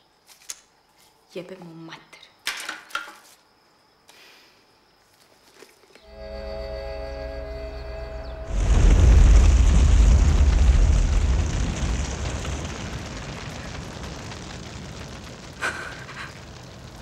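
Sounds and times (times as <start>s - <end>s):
loud explosion rumble: 6.2s - 17.0s.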